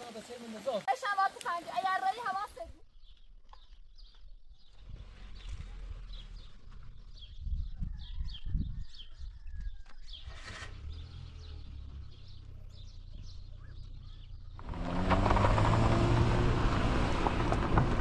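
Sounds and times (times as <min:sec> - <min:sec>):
small birds chirping: 0:00.1 - 0:16.0
loud engine running: 0:10.6 - 0:18.0.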